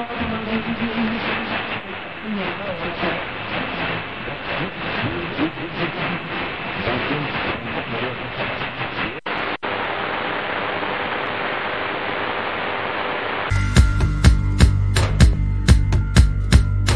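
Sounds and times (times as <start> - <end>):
radio static hiss: 0.0 - 13.5.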